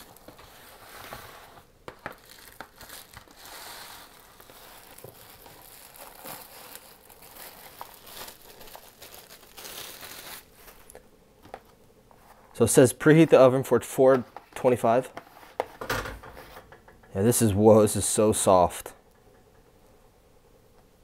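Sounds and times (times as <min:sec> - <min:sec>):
plastic wrap crinkling: 0:00.0 - 0:11.7.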